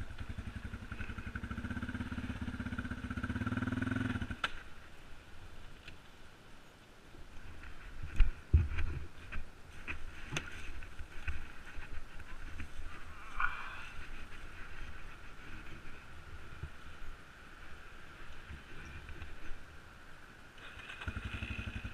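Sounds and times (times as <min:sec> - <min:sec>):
quad engine running: 0:00.0 - 0:04.6, 0:20.6 - 0:21.9.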